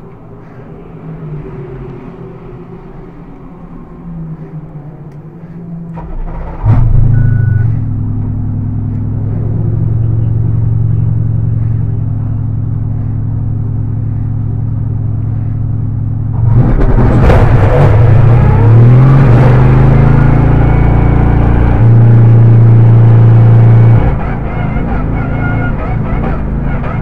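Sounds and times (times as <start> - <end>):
car engine revving: 0.0 - 27.0
car engine starting and idling: 0.0 - 27.0.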